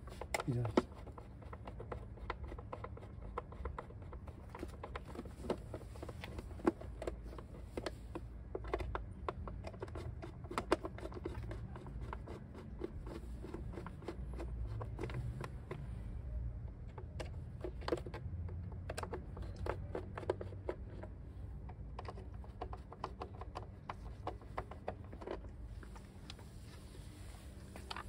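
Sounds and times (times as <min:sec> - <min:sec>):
hands clicking and scraping plastic: 0:00.0 - 0:26.6
low steady rumble: 0:00.0 - 0:28.0.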